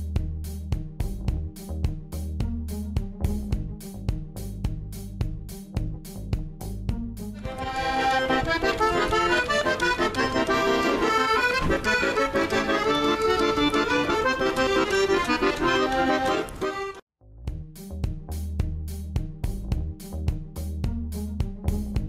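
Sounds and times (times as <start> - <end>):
background music with a beat: 0.0 - 22.0
accordion melody: 7.2 - 17.1.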